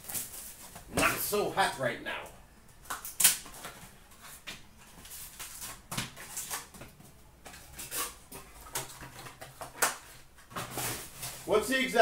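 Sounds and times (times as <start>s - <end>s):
cardboard and foil rustling: 0.0s - 1.4s, 3.5s - 6.8s, 7.5s - 12.0s.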